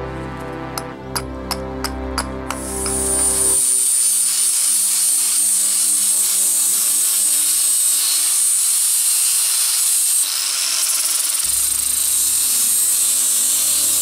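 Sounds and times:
low hum: 0.0 - 3.6
sanding wood: 2.5 - 14.0.

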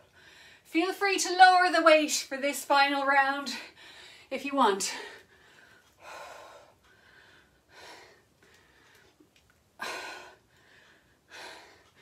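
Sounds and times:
woman breathing hard: 5.1 - 9.2, 9.8 - 12.0.

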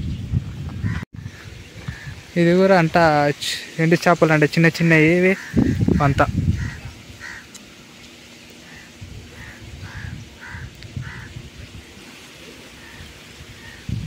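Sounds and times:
crows cawing: 0.8 - 2.3, 5.1 - 7.7, 8.5 - 11.4, 12.6 - 14.0.

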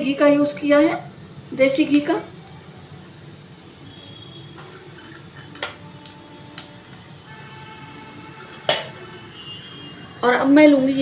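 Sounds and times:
spices crackling in hot oil: 3.4 - 7.6.

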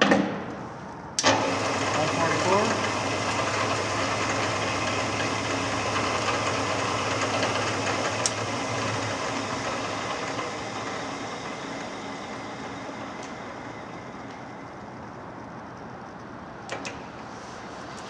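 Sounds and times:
lathe motor humming: 1.2 - 15.6.

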